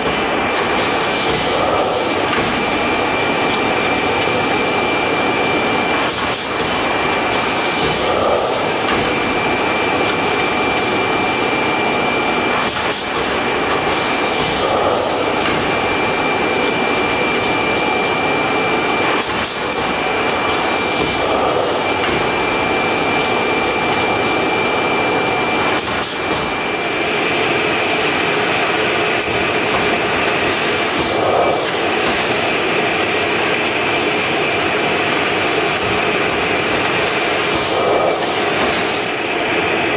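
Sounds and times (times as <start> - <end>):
high machine whine: 0.0 - 39.9
machine hum and hiss: 0.0 - 39.9.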